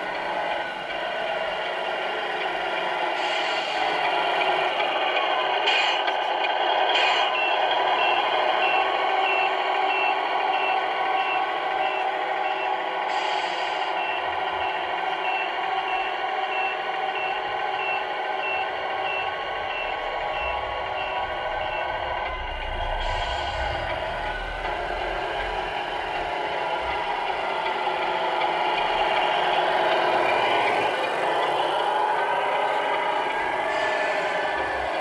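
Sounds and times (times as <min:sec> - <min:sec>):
simulated diesel engine running: 0:00.0 - 0:35.0
reversing beeps: 0:07.0 - 0:12.7, 0:13.5 - 0:27.0.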